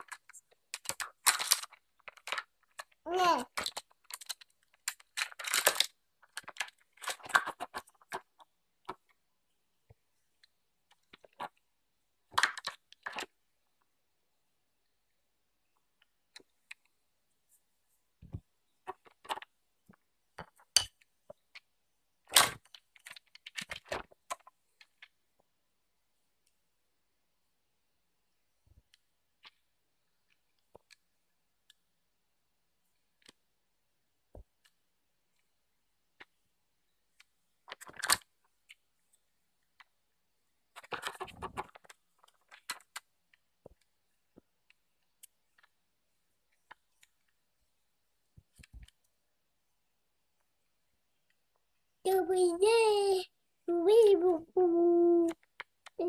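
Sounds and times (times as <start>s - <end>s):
plastic toy pieces clicking: 0.0s - 8.4s
plastic toy parts clacking: 0.0s - 9.2s, 12.3s - 13.4s, 22.3s - 25.2s, 37.2s - 38.8s, 40.7s - 43.9s.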